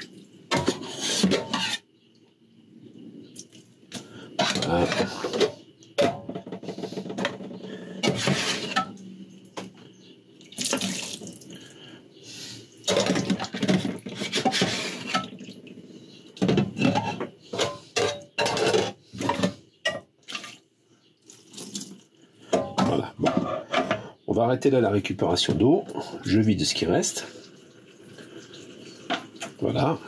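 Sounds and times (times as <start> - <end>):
dishes scrubbed: 0.5 - 1.8, 8.0 - 9.0, 12.9 - 15.4, 16.5 - 20.4
dishes clinking against sink: 4.4 - 9.0, 12.9 - 15.4, 16.4 - 20.1, 22.5 - 24.1, 29.0 - 29.6
water splashing and running: 10.4 - 11.4, 21.3 - 22.0.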